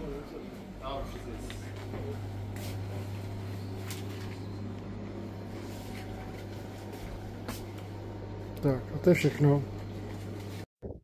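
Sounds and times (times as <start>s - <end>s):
steady low hum: 0.0s - 10.6s.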